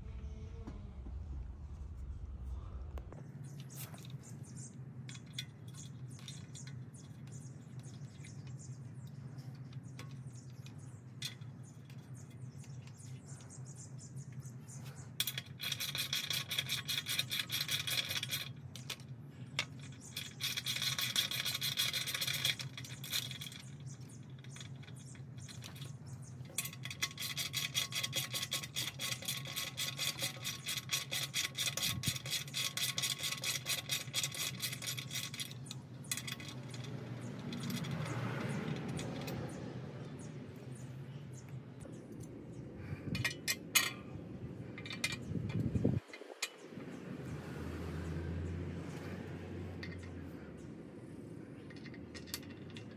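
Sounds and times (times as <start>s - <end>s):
low steady hum: 0.0s - 16.9s
ratchet wrench clicking fast: 15.2s - 19.0s, 19.7s - 25.8s, 26.6s - 39.5s.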